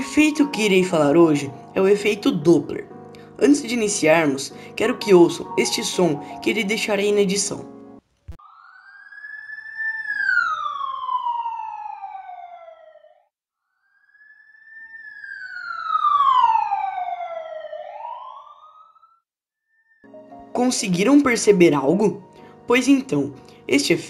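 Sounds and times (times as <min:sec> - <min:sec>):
emergency siren wailing: 0:08.4 - 0:19.2.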